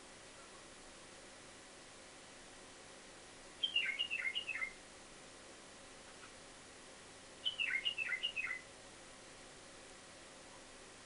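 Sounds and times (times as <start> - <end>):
bulbul calling: 3.6 - 4.8, 7.4 - 8.7.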